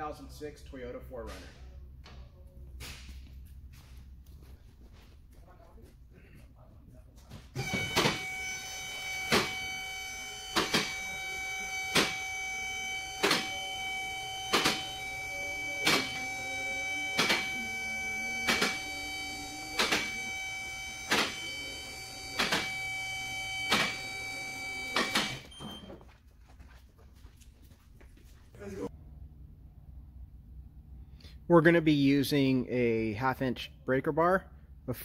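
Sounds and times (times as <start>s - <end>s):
hydraulic pump motor whine: 7.6s - 25.9s.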